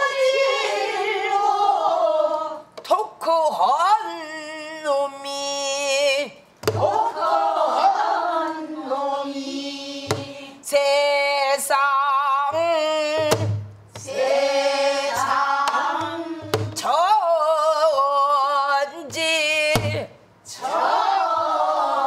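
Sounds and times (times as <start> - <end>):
woman singing with vibrato: 0.0 - 13.4, 14.0 - 20.2
barrel drum struck with stick: 13.2 - 14.2, 16.0 - 16.8.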